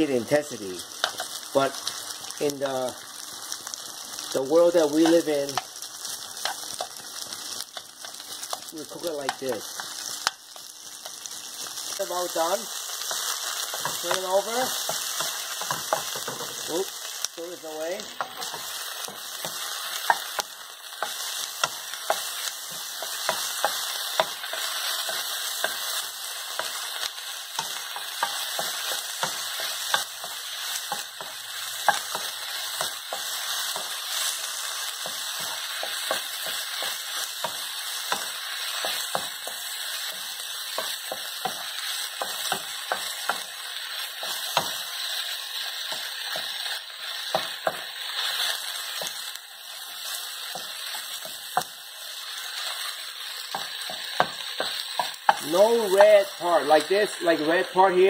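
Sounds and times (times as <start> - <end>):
chicken sizzling in a frying pan: 0.0 - 58.0
spatula scraping a pan: 18.0 - 56.1.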